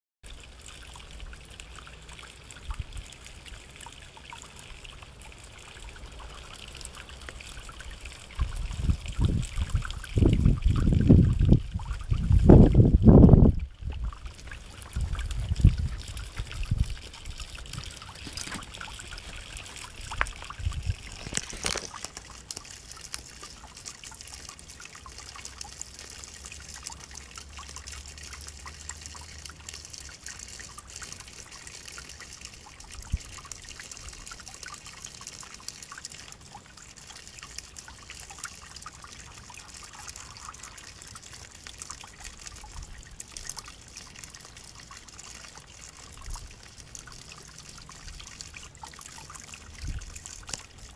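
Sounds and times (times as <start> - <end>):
water trickling onto grass: 0.2 - 50.9.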